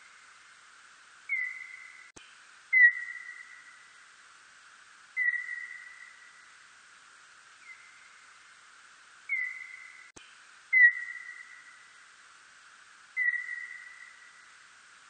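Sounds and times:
steady hiss: 0.0 - 15.0
bat calls whistled notes: 13.2 - 14.2.

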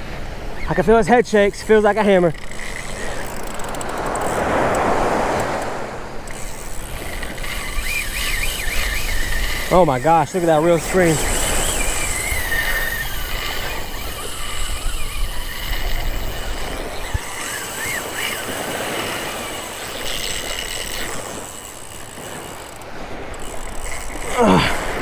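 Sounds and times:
surf wash: 0.0 - 25.0
wind: 0.0 - 25.0
fishing reel drag whining: 0.5 - 25.0.

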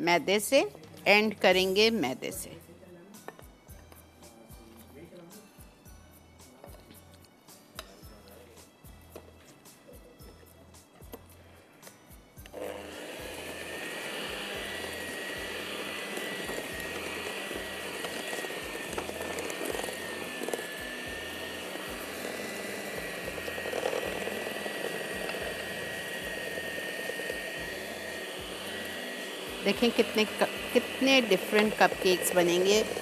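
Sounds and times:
electric mixer whining: 12.5 - 33.0.

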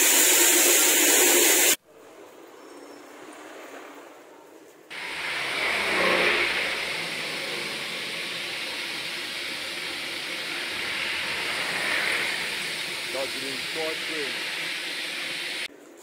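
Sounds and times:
steam hissing: 0.0 - 1.8, 4.9 - 15.7
locomotive engine: 4.9 - 15.7.

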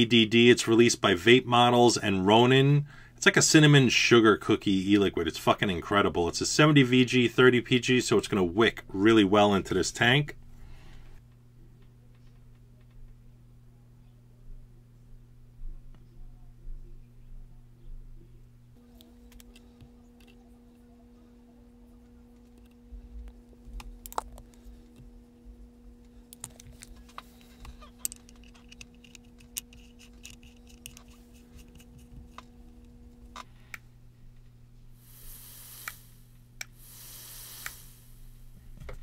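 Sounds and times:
hissing sizzle of coils firing: 34.9 - 38.7.

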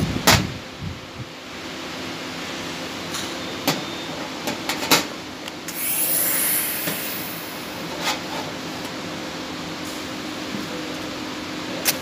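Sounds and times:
welding torch hissing: 5.7 - 8.0
steady hum: 5.7 - 9.7.

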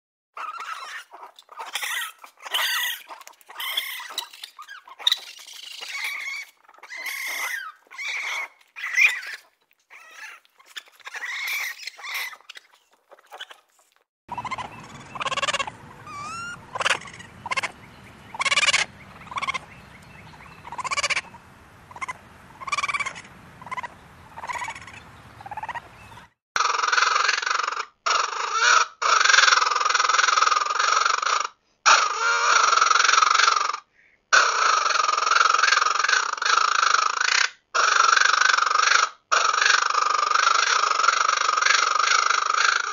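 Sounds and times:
baby raccoons crying: 0.4 - 13.6, 14.3 - 25.8, 28.1 - 33.7
raccoons squeaky chirps: 0.4 - 26.4
low steady background noise: 14.3 - 26.3.

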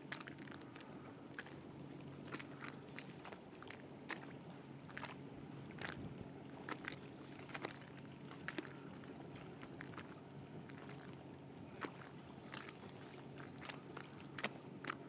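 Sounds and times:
faint steady low hum: 0.0 - 15.0
small waves lapping against boat: 0.0 - 15.0.

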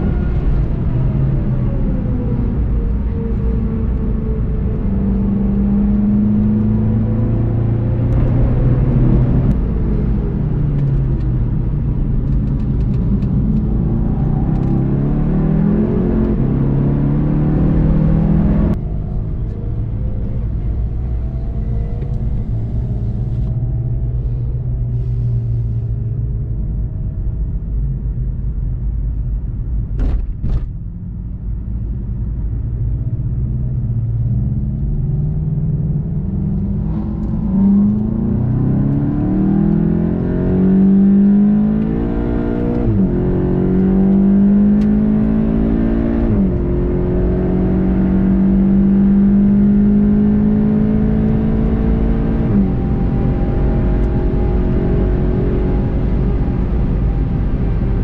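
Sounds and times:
car engine accelerating: 0.0 - 30.0, 30.6 - 58.0.

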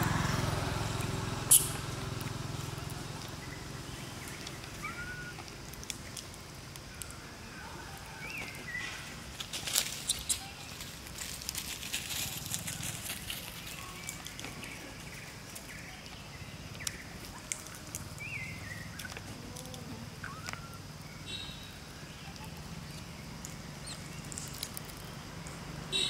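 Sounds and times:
small clicks and rustles: 4.2 - 7.2, 9.3 - 18.2, 22.3 - 25.6.

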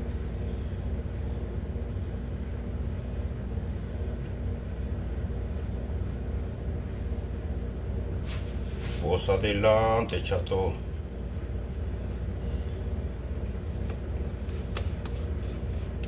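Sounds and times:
low machine rumble and hum: 0.0 - 16.0.

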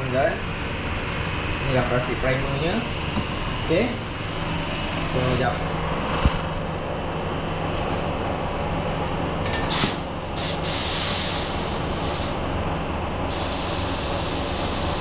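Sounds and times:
exhaust fans humming: 0.0 - 15.0
short bursts of hiss: 9.7 - 12.4, 13.3 - 15.0.

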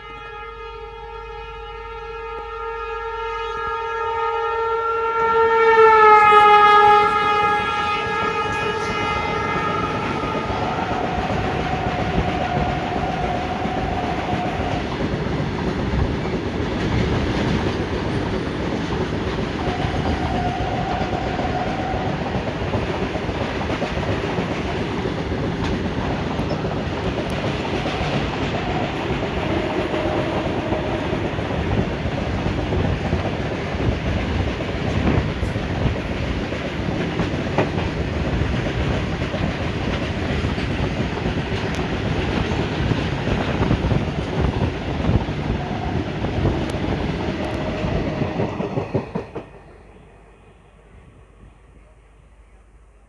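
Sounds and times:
locomotive horn: 0.0 - 15.0, 19.6 - 22.5, 27.8 - 31.4, 45.4 - 48.6.

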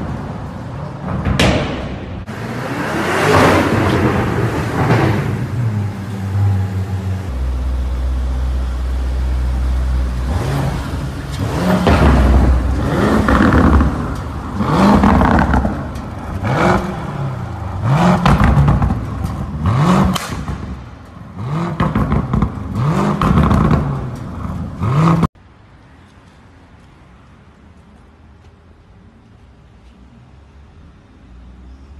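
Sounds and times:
car exhaust revving: 1.7 - 25.3.

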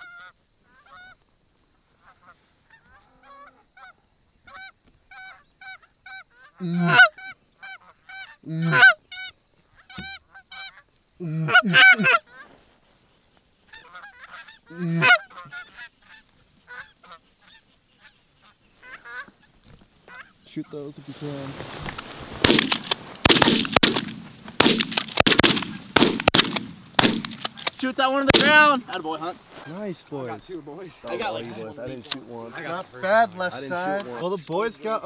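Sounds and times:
loud close geese honks: 0.0 - 1.2, 2.0 - 12.5, 13.7 - 19.5, 20.1 - 20.8, 32.3 - 33.6
distant geese honking: 2.0 - 12.6, 13.6 - 34.3.

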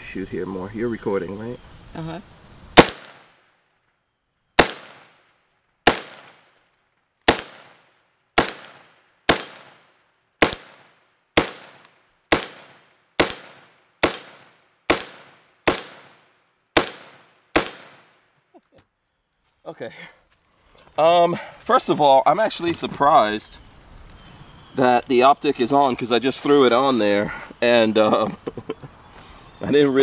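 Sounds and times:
rifle shots with echo: 2.8 - 3.3, 4.6 - 5.2, 5.8 - 6.6, 7.3 - 16.2, 16.8 - 18.1.

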